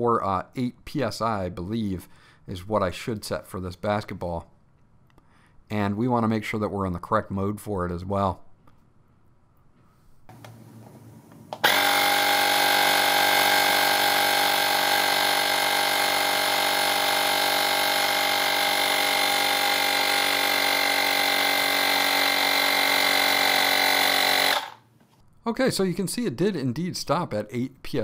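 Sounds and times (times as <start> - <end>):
small air compressor whining: 10.3 - 24.9.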